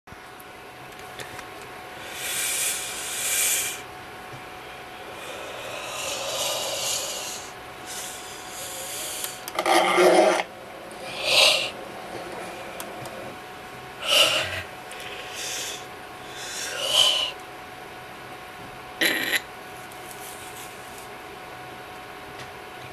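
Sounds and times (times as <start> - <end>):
man breathing heavily: 1.9 - 3.9, 4.7 - 9.5, 14.0 - 17.4.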